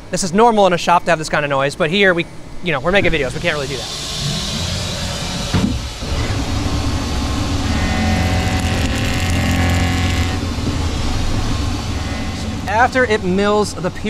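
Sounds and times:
low machine hum: 0:01.8 - 0:14.0
whining cutting tone: 0:02.9 - 0:14.0
short rising whir: 0:03.1 - 0:13.5
lathe milling metal: 0:03.2 - 0:14.0.

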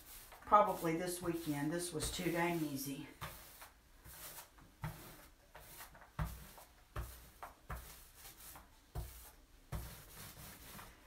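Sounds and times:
paint roller rubbing: 0:00.0 - 0:11.0.

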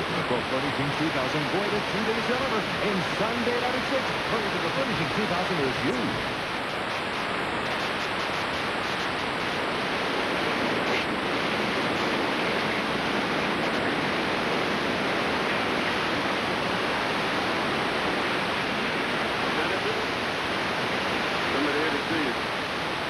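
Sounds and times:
static hiss of video tape: 0:00.0 - 0:23.0.

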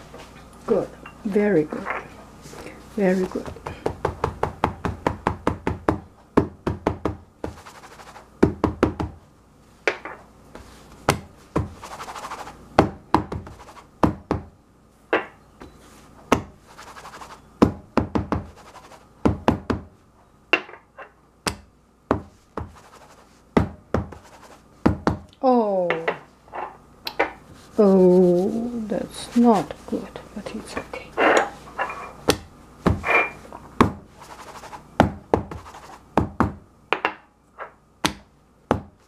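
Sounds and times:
scraping sounds: 0:11.7 - 0:12.6, 0:15.8 - 0:17.4, 0:24.2 - 0:24.7, 0:30.9 - 0:32.2, 0:33.0 - 0:34.9.

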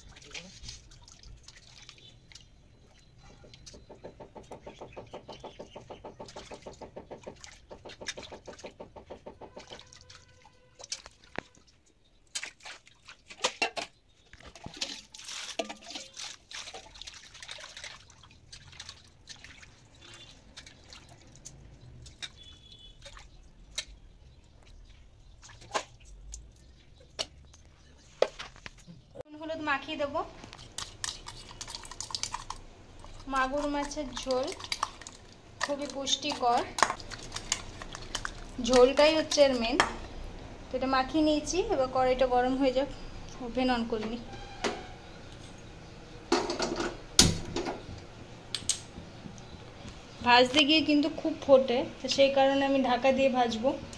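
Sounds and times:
water splashing in steel bowl: 0:00.0 - 0:27.6, 0:29.8 - 0:40.2.

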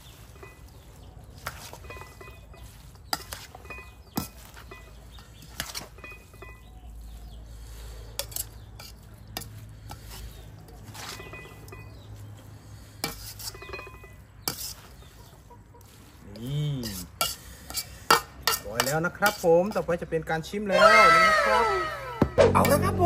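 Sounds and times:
utensils clinking on metal bowl: 0:00.0 - 0:06.9, 0:08.2 - 0:12.2, 0:13.0 - 0:15.2, 0:16.4 - 0:20.0.

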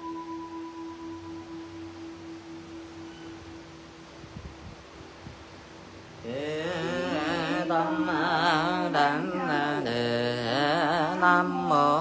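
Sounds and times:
person chanting with vibrato: 0:06.2 - 0:12.0.

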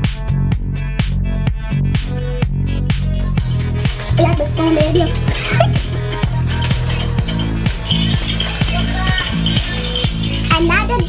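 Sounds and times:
electronic dance music: 0:02.9 - 0:11.0.

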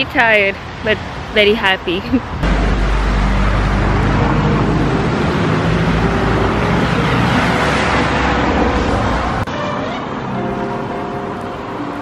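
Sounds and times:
deep engine rumble: 0:02.3 - 0:09.5.

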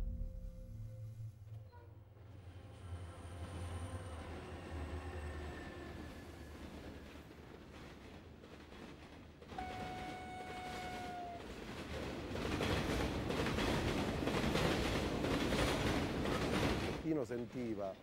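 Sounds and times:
train wheels clattering on rails: 0:05.9 - 0:18.0
train horn: 0:09.5 - 0:11.6.

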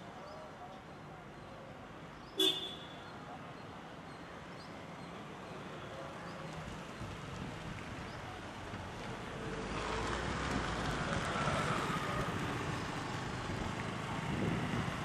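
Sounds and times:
motor vehicle noise: 0:04.8 - 0:15.0
wind on microphone: 0:13.3 - 0:15.0.

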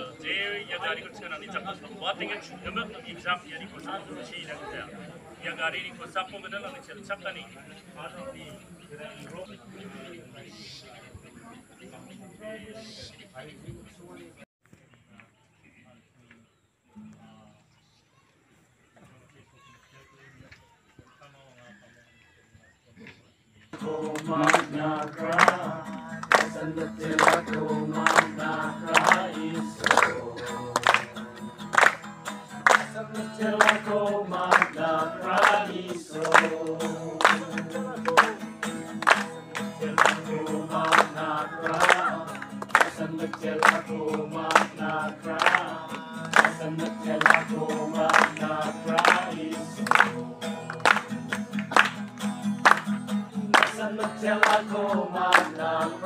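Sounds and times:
group of people singing: 0:23.8 - 0:51.4, 0:53.3 - 0:56.0
strummed acoustic guitar: 0:23.8 - 0:56.0.

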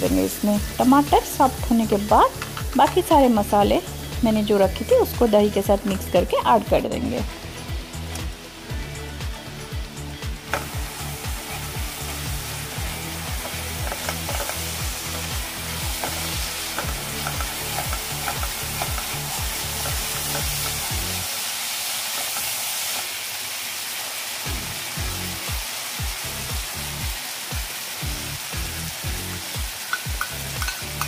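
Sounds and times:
food sizzling in hot oil: 0:00.0 - 0:31.0
spatula scraping and clicking on pan: 0:13.4 - 0:14.7, 0:16.0 - 0:19.2, 0:29.9 - 0:31.0.

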